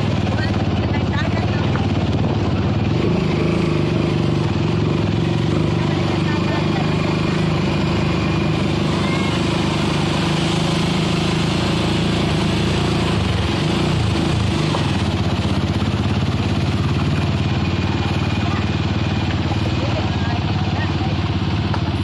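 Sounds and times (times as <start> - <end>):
small vehicle engine running: 0.0 - 22.0
water rushing across road: 5.8 - 22.0.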